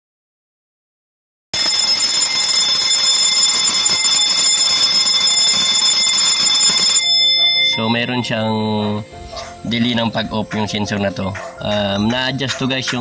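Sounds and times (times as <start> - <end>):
electric alarm bell ringing: 1.6 - 9.1.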